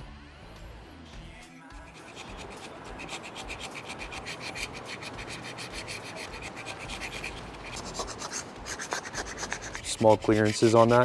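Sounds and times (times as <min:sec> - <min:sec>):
scraper blade scraping metal: 0:01.8 - 0:11.0.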